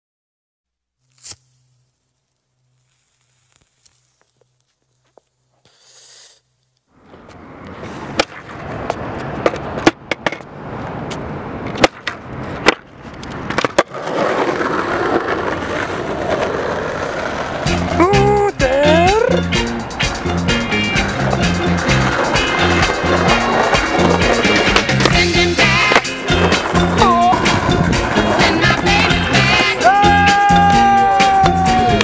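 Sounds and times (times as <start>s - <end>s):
skateboard wheels rolling on concrete: 2.4s - 32.0s
sharp skateboard clacks: 7.3s - 17.6s, 20.1s - 29.9s.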